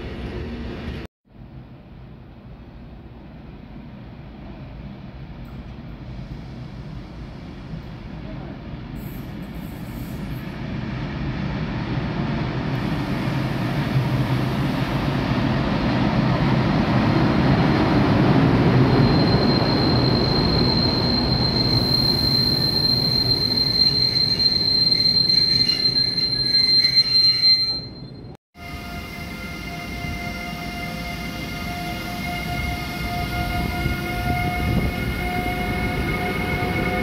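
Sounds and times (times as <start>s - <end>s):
train rolling rumble: 0.0s - 27.1s
high-pitched wheel squeal: 18.8s - 37.0s.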